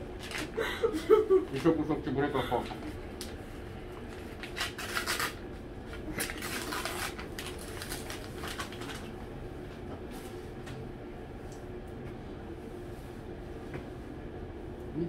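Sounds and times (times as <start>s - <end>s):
foil paper bag crinkling: 4.1s - 5.4s, 6.0s - 9.1s.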